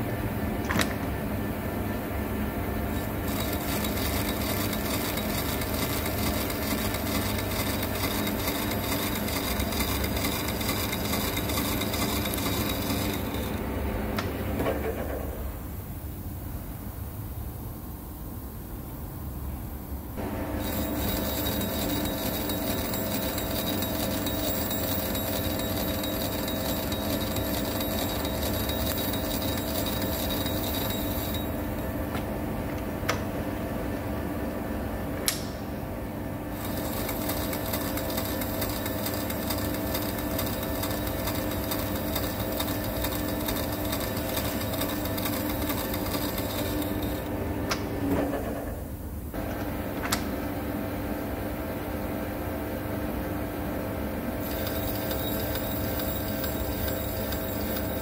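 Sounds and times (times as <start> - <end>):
metal lathe gear whine: 2.9 - 13.7, 20.2 - 32.0, 36.5 - 47.4, 54.4 - 58.0.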